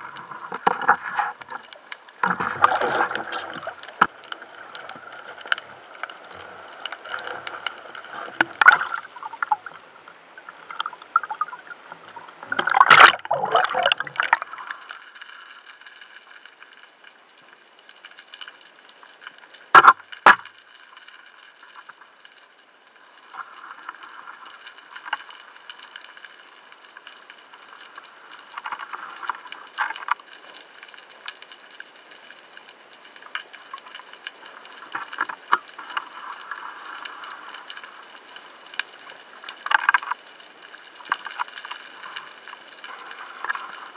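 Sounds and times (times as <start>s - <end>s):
bubbling splashing burst: 10.6s - 14.7s.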